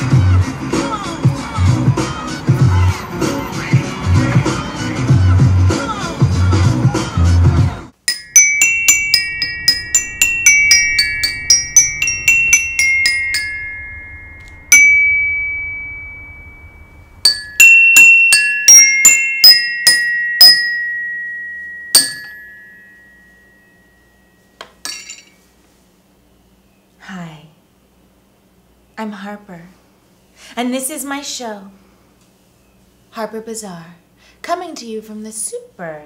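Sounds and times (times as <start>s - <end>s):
bell-toned percussion jingle: 8.1s - 25.2s.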